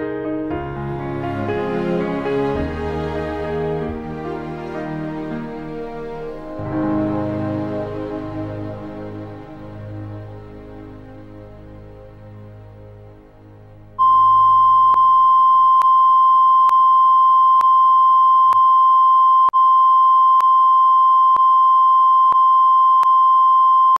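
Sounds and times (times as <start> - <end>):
soft music: 0.0 - 14.2.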